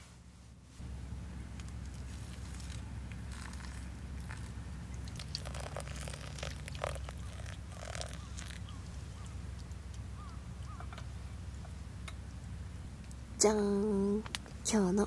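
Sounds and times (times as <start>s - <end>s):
steady low hum: 0.0s - 15.0s
coffee grounds crackling: 1.6s - 9.7s
hot water pouring from kettle: 3.3s - 8.6s.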